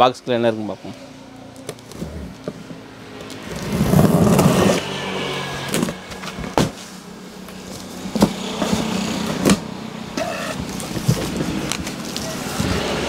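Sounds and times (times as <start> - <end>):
cardboard flaps rustling: 7.6 - 13.0.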